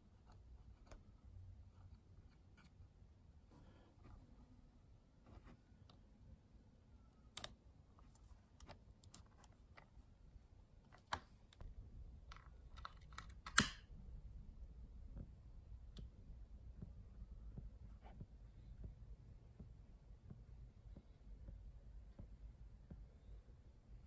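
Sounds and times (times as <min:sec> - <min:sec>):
faint clicks handling wires: 0:07.3 - 0:10.0.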